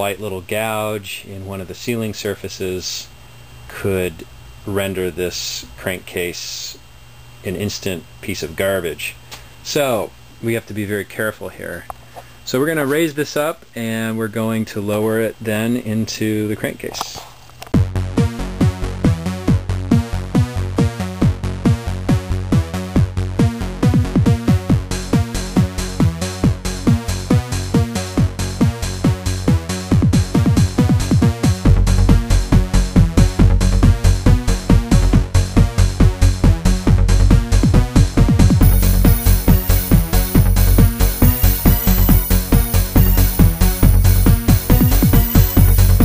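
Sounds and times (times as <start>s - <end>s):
electronic trance music: 38.4s - 46.0s.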